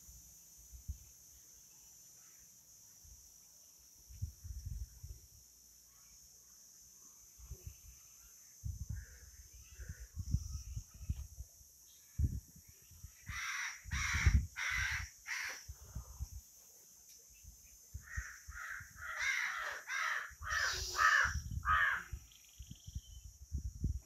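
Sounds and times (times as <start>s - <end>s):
bird calling: 18.1s - 22.8s.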